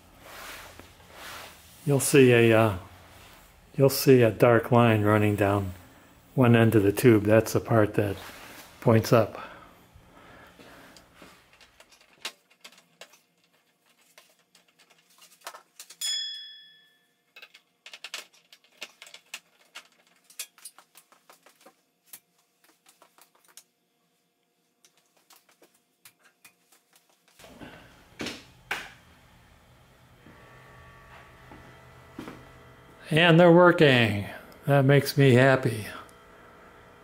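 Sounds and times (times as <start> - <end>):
short ringing ping: 16.0 - 17.1.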